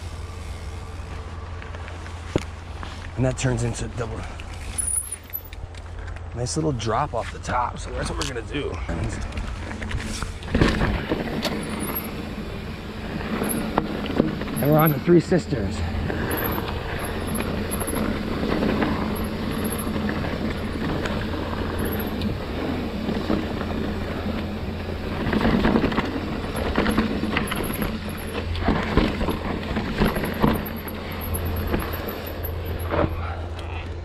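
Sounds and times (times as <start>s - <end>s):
tyre noise on dirt: 9.0s - 34.0s
bike knocks and rattles: 9.2s - 33.3s.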